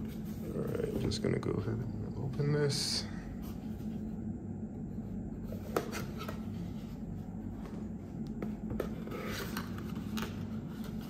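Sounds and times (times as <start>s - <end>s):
steady low hum: 0.0s - 11.0s
cardboard scraping: 8.7s - 11.0s.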